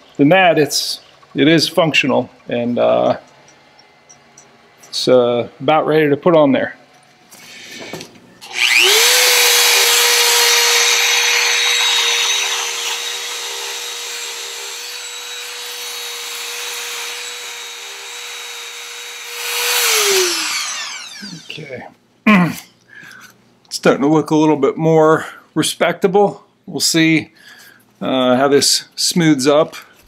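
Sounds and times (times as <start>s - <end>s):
rotary tool whining: 7.3s - 21.8s.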